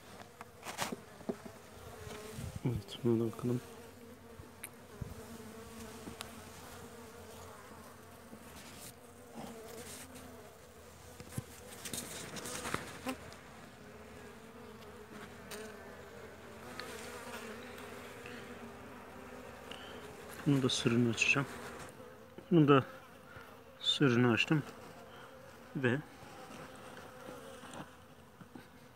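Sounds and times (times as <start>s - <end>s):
honeybees humming: 0.0s - 28.9s.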